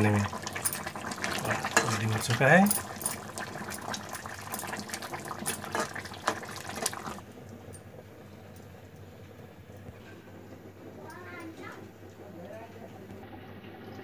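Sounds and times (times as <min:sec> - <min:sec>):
metal spoon stirring: 0:00.0 - 0:07.2
curry bubbling in a pot: 0:00.0 - 0:07.6.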